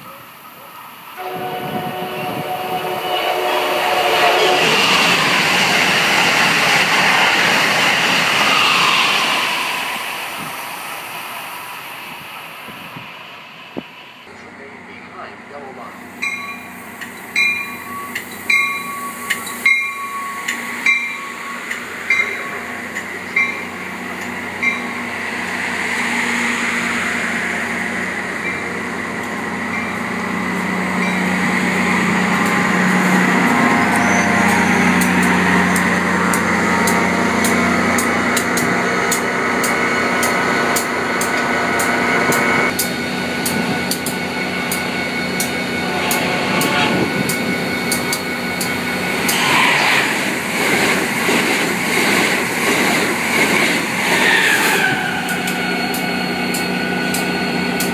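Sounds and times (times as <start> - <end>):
train mechanical hum: 0.0 - 57.9
train wheels clicking over joints: 50.2 - 57.9.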